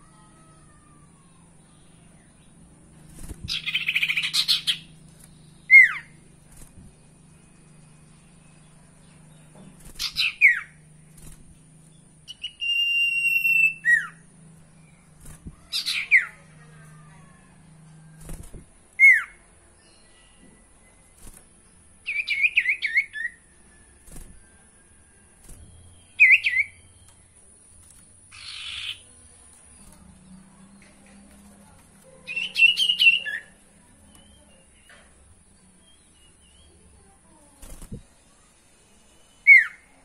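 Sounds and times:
bird chattering and whistling: 3.5 - 4.9, 5.6 - 6.2, 10.0 - 10.8, 12.3 - 14.2, 15.7 - 16.4, 19.0 - 19.4, 26.0 - 26.8, 28.3 - 29.1, 32.2 - 33.6, 39.4 - 39.9
clear bird whistle: 12.3 - 14.2, 26.1 - 26.8, 39.3 - 39.9.

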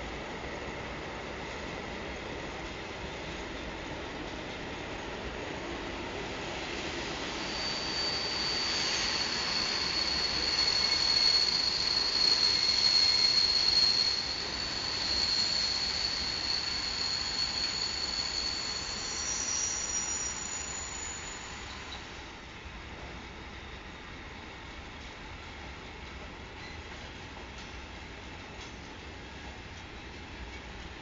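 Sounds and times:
train wheels squealing: 5.4 - 22.3, 22.9 - 31.0
rumble of wagons on rails: 18.8 - 31.0.

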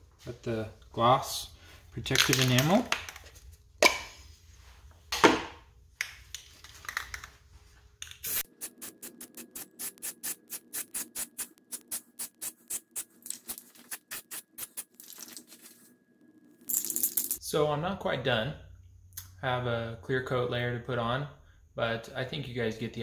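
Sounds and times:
spray can ball rattling: 8.0 - 15.8.

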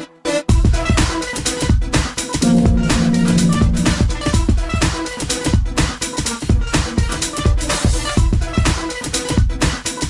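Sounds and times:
electronic music with deep bass: 2.4 - 4.4.

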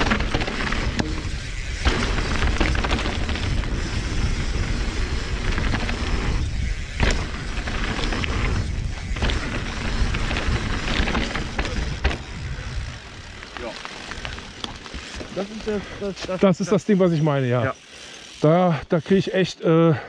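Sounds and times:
wind buffeting microphone: 0.0 - 16.2
bike knocking over bumps: 0.0 - 16.4
bike tyres rolling on dirt: 0.0 - 19.5.

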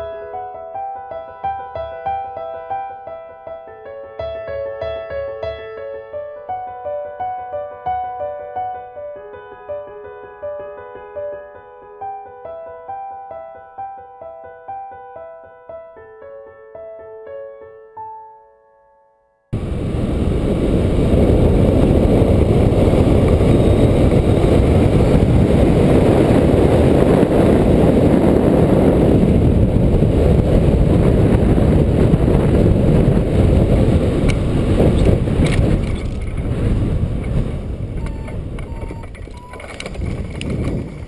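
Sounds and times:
wind rushing over microphone: 19.6 - 41.0
sharp clicks and knocks: 35.0 - 36.6, 37.2 - 41.0.

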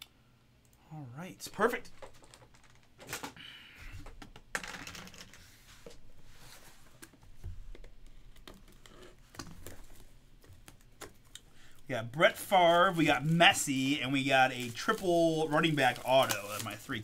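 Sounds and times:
shrink wrap crinkling: 9.4 - 17.0.

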